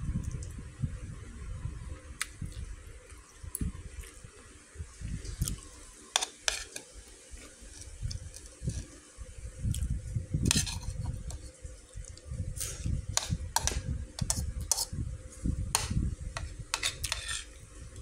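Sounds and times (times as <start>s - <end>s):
metal spoon scraping a bowl: 6.1s - 6.9s, 7.6s - 9.0s, 10.4s - 11.5s, 12.6s - 15.0s, 15.7s - 17.6s.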